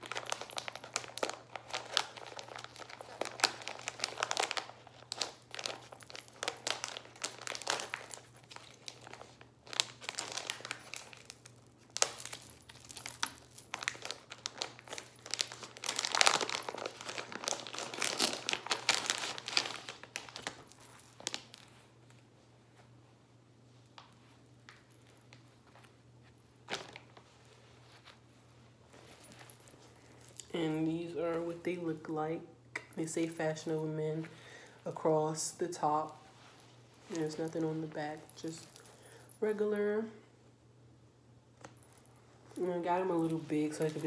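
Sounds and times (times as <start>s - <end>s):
plastic pouch crinkling: 0.0s - 21.8s.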